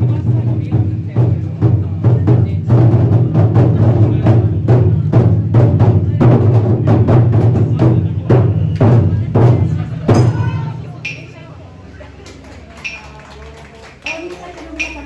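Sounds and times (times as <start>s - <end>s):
drums played in fast strokes: 0.0s - 11.5s.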